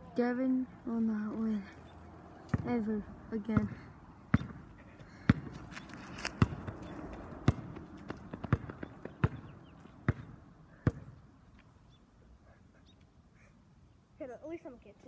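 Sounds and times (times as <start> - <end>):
basketball bouncing: 2.5 - 11.3.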